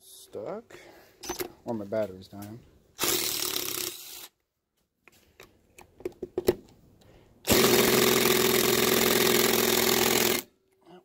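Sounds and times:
impact driver running: 7.5 - 10.5.

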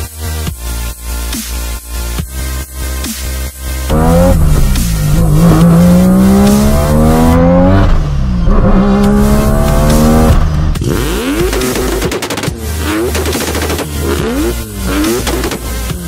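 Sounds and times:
rotary engine revving hard: 3.9 - 16.0.

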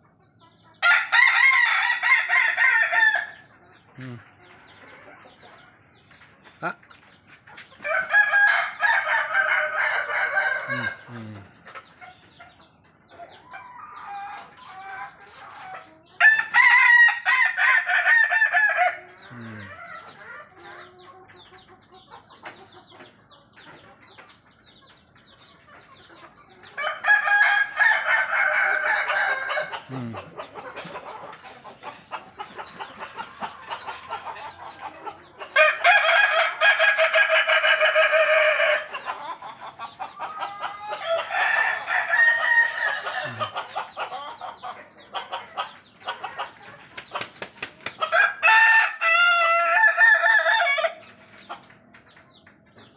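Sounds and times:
soft chicken calls: 0.0 - 52.9
roosters crowing: 0.8 - 4.2, 7.8 - 11.4, 16.2 - 20.2, 26.6 - 44.6, 47.9 - 51.2.

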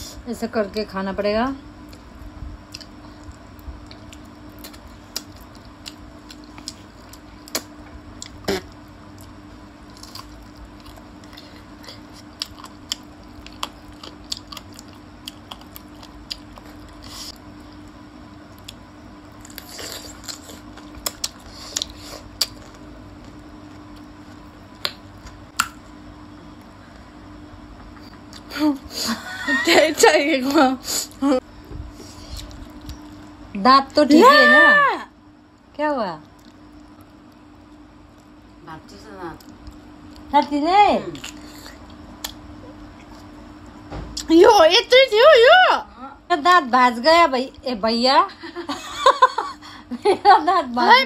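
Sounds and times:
faint steady hum: 0.0 - 51.0
close chewing and biting: 2.7 - 25.8, 41.1 - 42.4.

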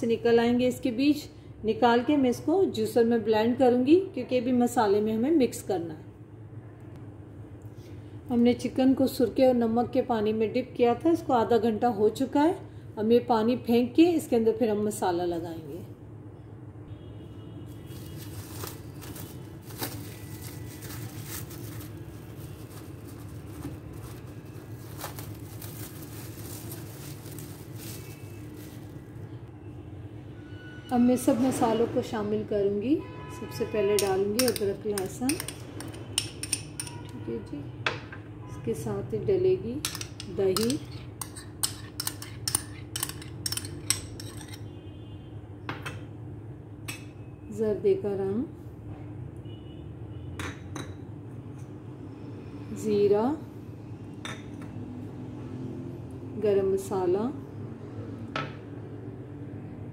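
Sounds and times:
low background hum: 0.0 - 59.9
cling film crinkling: 17.9 - 29.2
metal spoon clinking on glass bowls: 33.9 - 37.2, 39.8 - 44.6.

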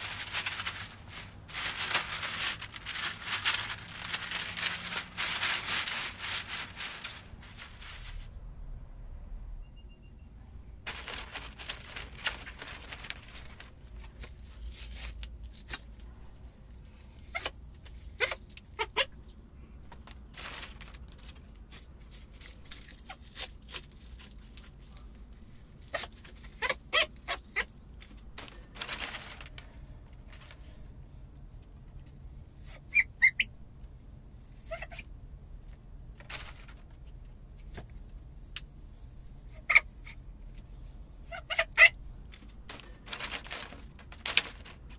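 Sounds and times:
dry leaves crackling: 0.0 - 8.4, 10.9 - 19.1, 20.0 - 30.8, 41.3 - 44.9.

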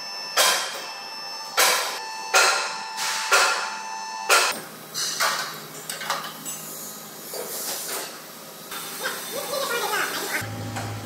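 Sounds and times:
hammer striking metal: 0.4 - 0.9, 1.6 - 5.4.

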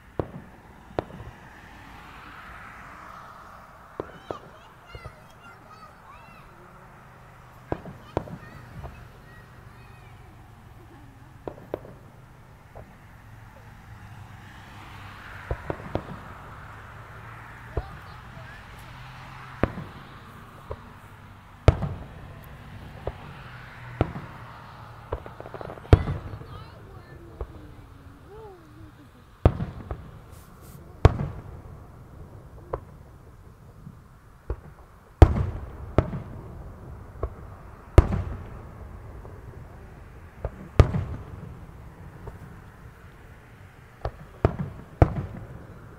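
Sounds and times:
distant fireworks bangs: 0.0 - 45.9
hiss: 30.2 - 30.9.

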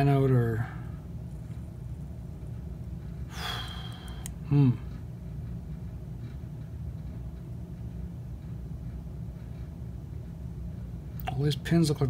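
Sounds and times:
low background hum: 0.0 - 12.0
man breathing out: 3.3 - 4.6
man humming hmm: 3.4 - 5.0.

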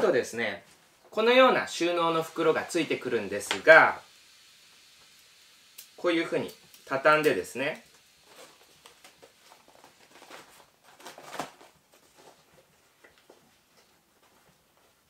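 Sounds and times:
fabric rustling: 8.2 - 15.0.

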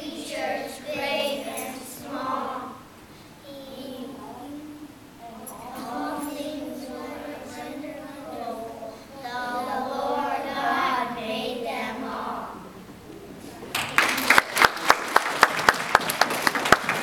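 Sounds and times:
children singing: 0.0 - 2.9, 5.2 - 12.8
audience applauding: 13.2 - 17.0.

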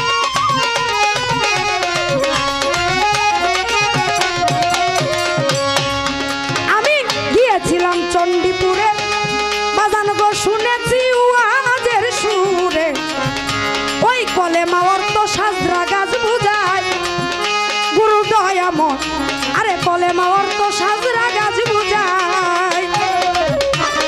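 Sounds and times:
drum accompaniment: 0.0 - 24.0
woman singing folk song: 6.7 - 9.0, 9.8 - 13.0, 14.0 - 16.8, 19.6 - 24.0.

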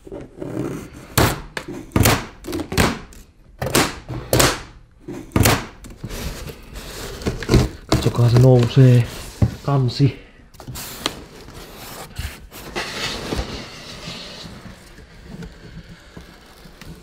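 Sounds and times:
rustling of strap and box: 5.1 - 17.0.

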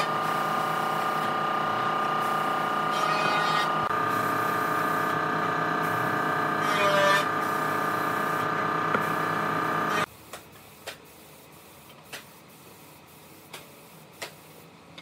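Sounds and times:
machine humming: 0.0 - 10.1.

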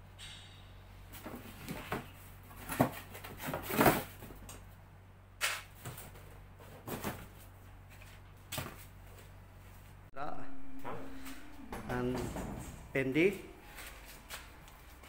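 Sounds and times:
low steady hum: 0.0 - 15.0
cardboard boxes rustling and knocking: 1.1 - 4.4, 5.8 - 8.9.

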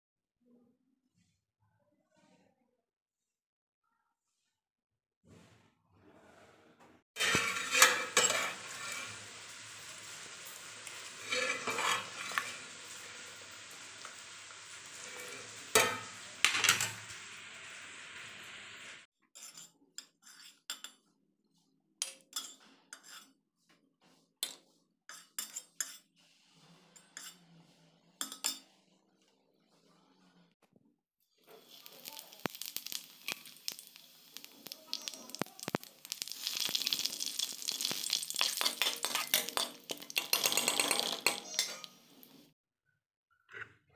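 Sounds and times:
utensils clinking on cookware: 7.2 - 17.4, 34.9 - 42.4
cooking hiss: 7.2 - 19.1, 31.4 - 42.5.

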